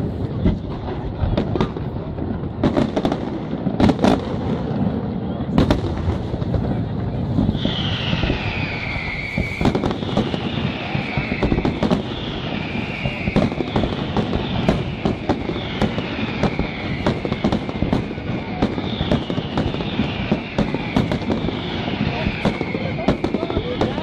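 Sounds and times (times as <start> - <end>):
fireworks bursting with sharp bangs: 0.0 - 24.0
high falling whistle: 7.4 - 24.0.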